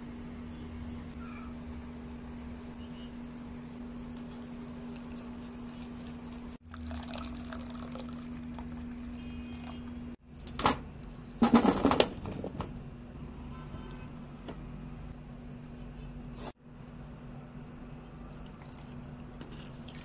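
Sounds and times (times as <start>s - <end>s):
water pouring into a bowl: 4.7s - 9.9s, 18.3s - 20.0s
loud clatters in a baking pan: 11.4s - 12.7s.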